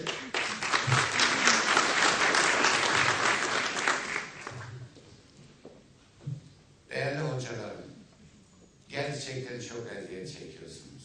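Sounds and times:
audience applauding: 0.0s - 4.8s.

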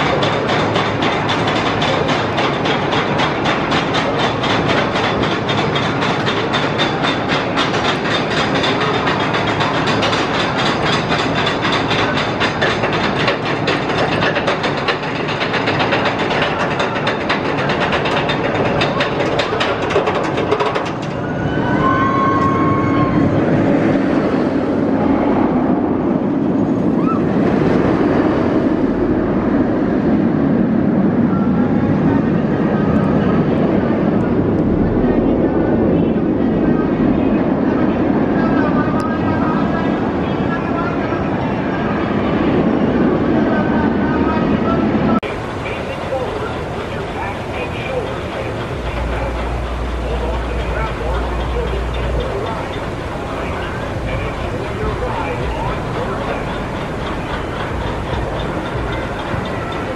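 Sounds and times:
roller coaster chain lift clattering: 0.0s - 29.1s, 45.2s - 59.9s
roller coaster rumbling on steel track: 0.0s - 59.9s.

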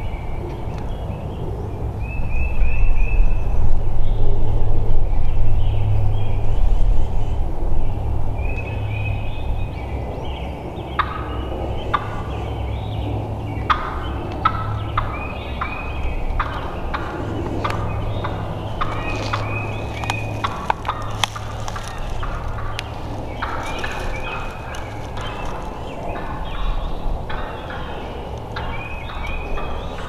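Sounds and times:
steady low rumble: 0.0s - 30.0s
wild turkeys gobbling: 10.9s - 30.0s.

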